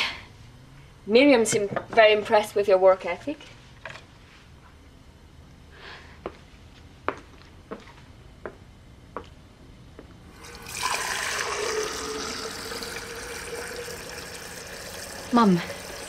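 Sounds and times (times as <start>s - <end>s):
water running into sink: 10.4s - 16.0s.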